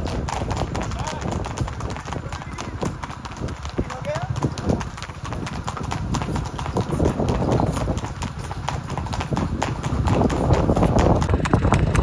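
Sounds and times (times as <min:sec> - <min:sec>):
horse hoofbeats clip-clopping: 0:00.0 - 0:12.0.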